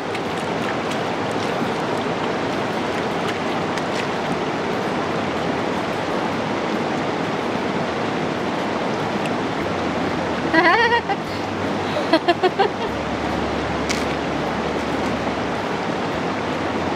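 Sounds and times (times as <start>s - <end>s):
river rushing: 0.0s - 16.9s.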